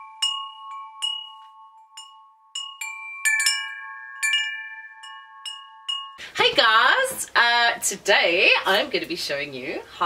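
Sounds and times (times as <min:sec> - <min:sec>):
metal wind chimes ringing: 0:00.0 - 0:06.3.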